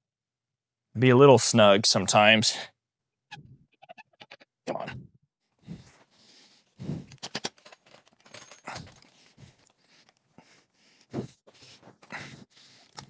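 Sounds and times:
metal scrapes clicks and knocks: 7.1s - 9.2s.

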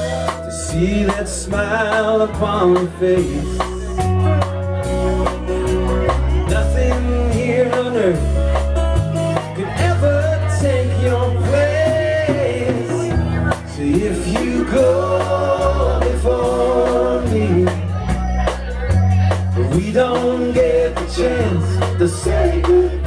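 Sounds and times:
bass guitar: 0.0s - 23.0s
drum kit with cymbal hits: 0.0s - 23.0s
electric guitar: 0.0s - 23.0s.

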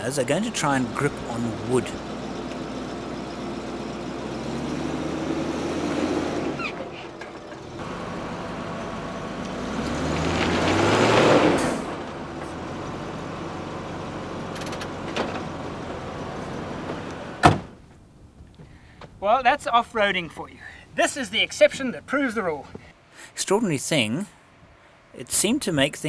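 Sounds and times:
car engine revving: 0.1s - 17.4s.

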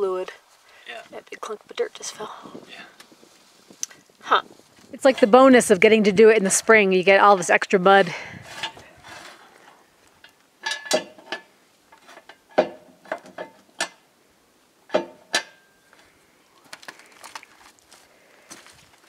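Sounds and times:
metallic clicks and knocks: 10.2s - 14.0s, 14.9s - 15.6s.

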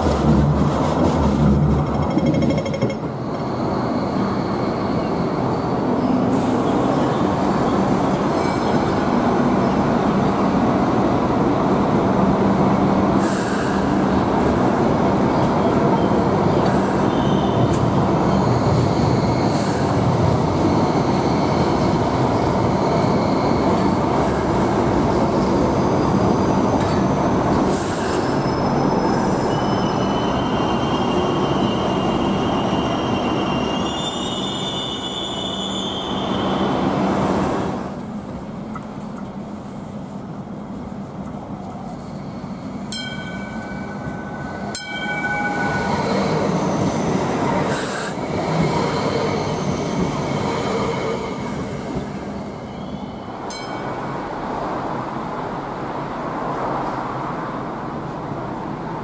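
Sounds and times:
rumble of train wheels: 0.0s - 59.0s.

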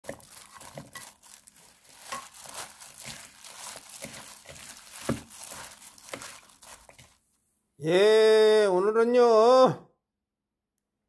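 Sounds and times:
vegetables rustling in bowl: 0.0s - 7.3s
plastic glove crinkling: 0.0s - 7.4s.

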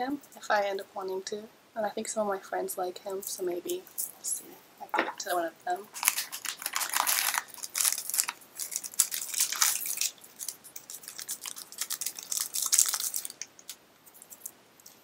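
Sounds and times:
packaging crinkling and tearing: 5.9s - 14.5s.

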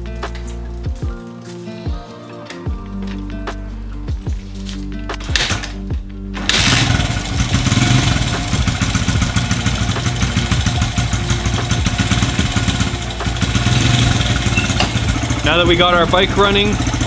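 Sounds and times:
dirt bike engine running: 5.2s - 17.0s.

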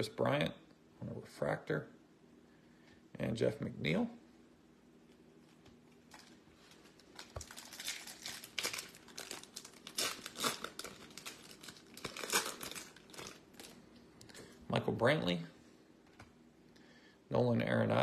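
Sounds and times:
foil wrapper tearing and crinkling: 6.1s - 13.8s.

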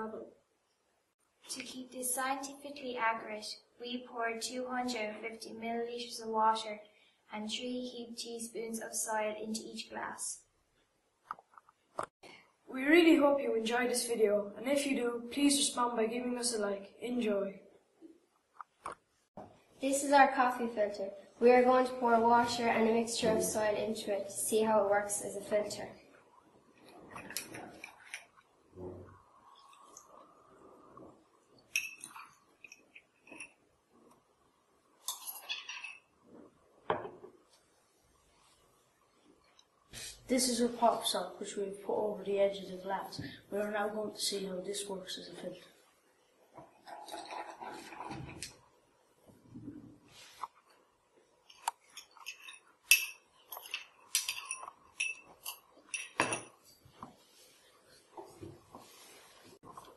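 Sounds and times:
teaspoon clinking against glass: 31.8s - 33.5s, 51.9s - 56.6s.

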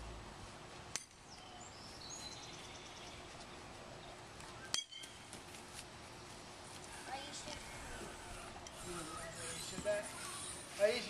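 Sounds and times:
birds chirping: 1.2s - 5.3s, 6.0s - 11.0s.

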